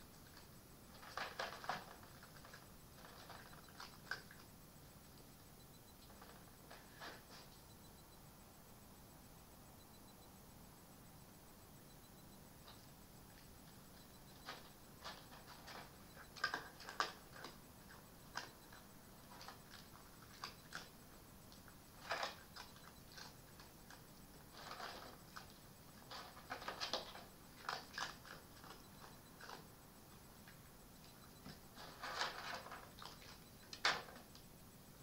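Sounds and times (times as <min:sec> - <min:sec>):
fox chewing and crunching: 0:00.0 - 0:05.3, 0:12.6 - 0:34.5.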